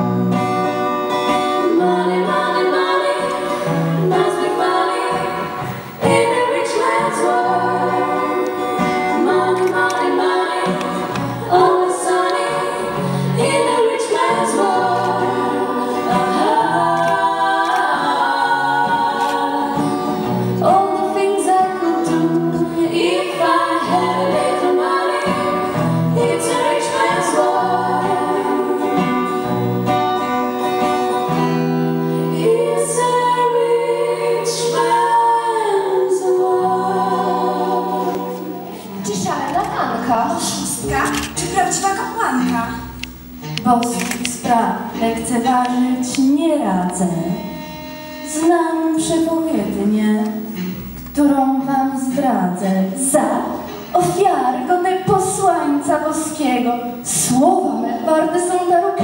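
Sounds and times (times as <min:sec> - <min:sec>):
people singing: 0:00.0 - 0:43.0, 0:43.8 - 0:59.0
acoustic guitar: 0:00.0 - 0:59.0
low bass notes: 0:38.5 - 0:43.9.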